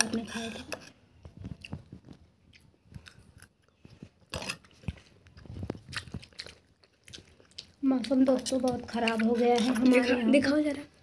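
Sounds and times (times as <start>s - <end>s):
chewing crunches: 1.3s - 10.1s.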